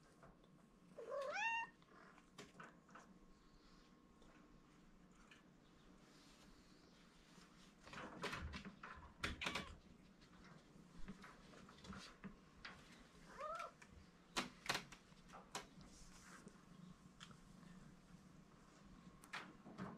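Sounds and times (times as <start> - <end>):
kitten meow: 1.0 - 1.8.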